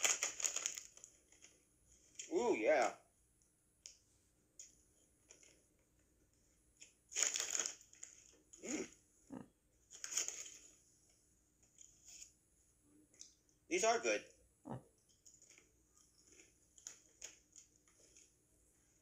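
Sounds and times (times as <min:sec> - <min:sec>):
foil chip bag crinkling: 0:00.0 - 0:02.4, 0:05.2 - 0:05.6, 0:06.8 - 0:08.6, 0:09.9 - 0:10.8, 0:15.2 - 0:18.4.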